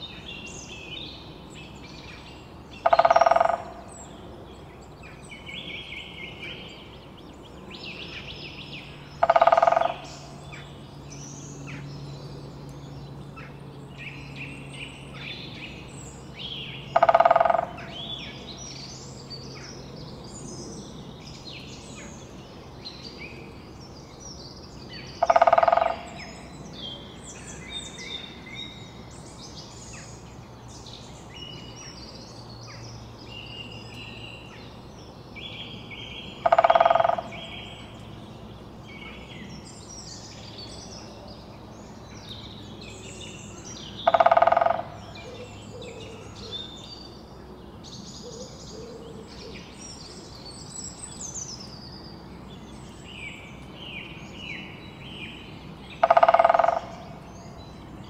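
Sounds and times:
songbirds chirping: 0.0 - 58.0
woodpecker drumming on wood: 2.8 - 3.9, 9.2 - 10.1, 16.9 - 18.0, 25.2 - 26.3, 36.4 - 37.4, 44.0 - 45.1, 56.0 - 57.1.

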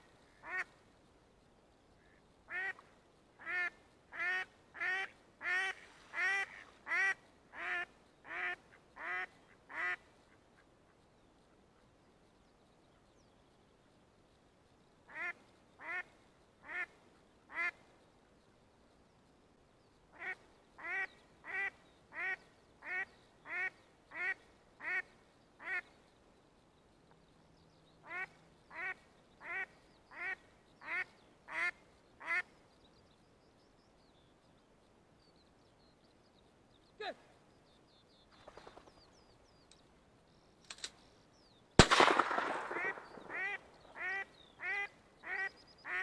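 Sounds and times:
duck quacking: 3.4 - 10.7, 20.2 - 25.9, 42.8 - 46.0.

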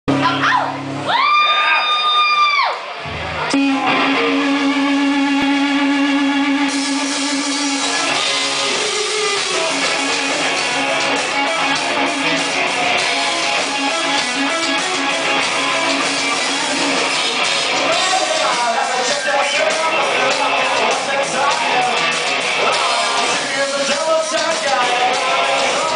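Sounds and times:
live rock band: 0.1 - 25.9
repeated low guitar note: 3.0 - 18.0
high gliding tone: 3.4 - 18.3.

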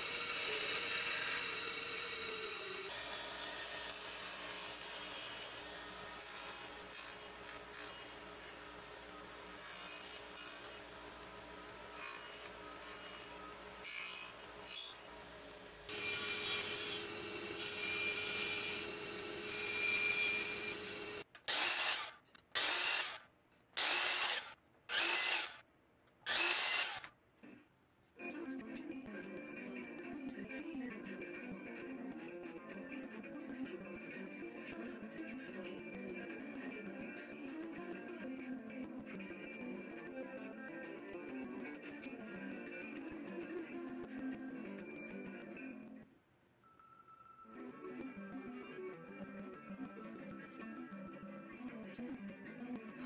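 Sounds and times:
radial arm saw cutting wood: 0.0 - 23.2, 23.8 - 25.6, 26.3 - 27.0
miter saw chop cuts: 15.9 - 23.2, 23.8 - 25.6, 26.3 - 27.0.

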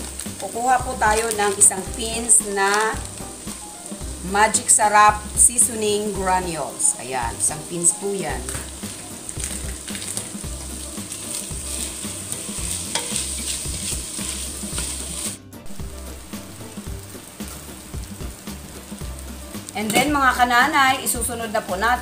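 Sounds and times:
chicken sizzling in a pot: 0.0 - 22.0
wooden spoon scraping a pot: 8.4 - 15.4.

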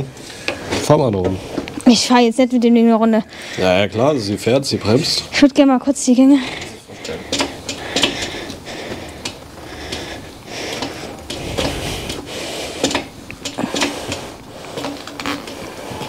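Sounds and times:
metal parts clicking and clunking: 12.8 - 16.0.

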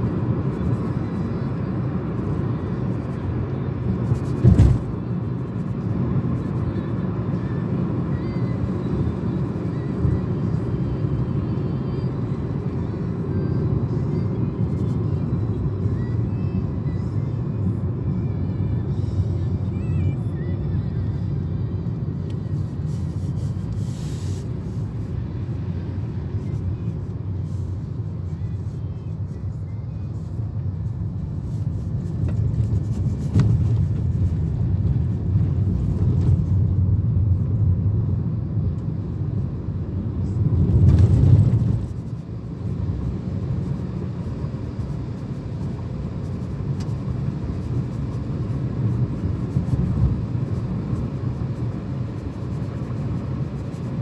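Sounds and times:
car cabin road and engine rumble: 0.0 - 54.0.

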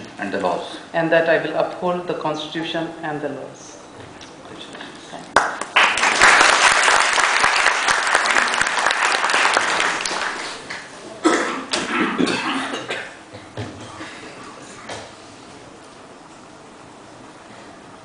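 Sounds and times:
people talking: 0.0 - 3.8
audience applauding: 5.4 - 10.9.

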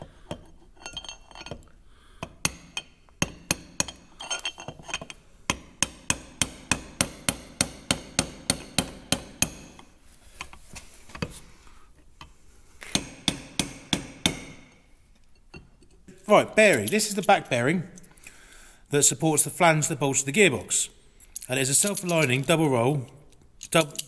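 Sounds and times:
hammer striking metal: 5.5 - 9.8, 13.0 - 14.8.

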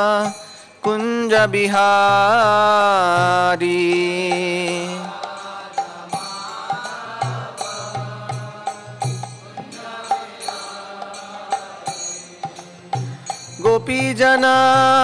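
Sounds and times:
small hand cymbals: 0.0 - 1.6, 2.4 - 15.0.

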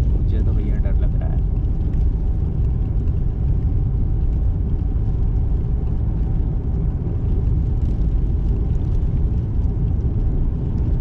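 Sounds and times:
car interior road rumble: 0.0 - 11.0.

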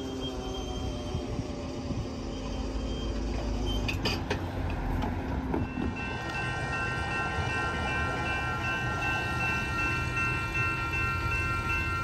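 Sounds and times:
truck rumbling on rails: 0.0 - 12.0
steady ringing tones: 5.6 - 12.0.

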